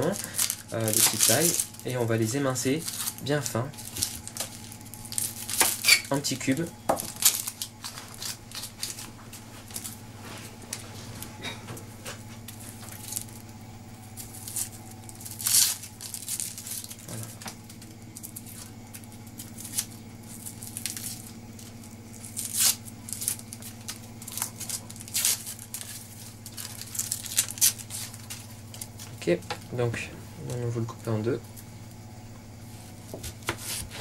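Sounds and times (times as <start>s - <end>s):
onion skin crackling and tearing: 0.0s - 10.0s, 12.4s - 29.7s.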